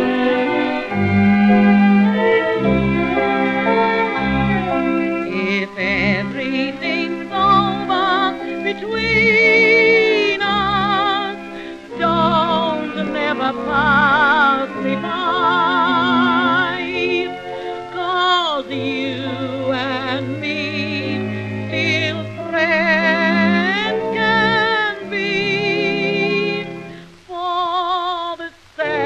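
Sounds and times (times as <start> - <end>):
orchestral accompaniment: 0.0 - 18.0
vibrato melody: 0.0 - 26.8.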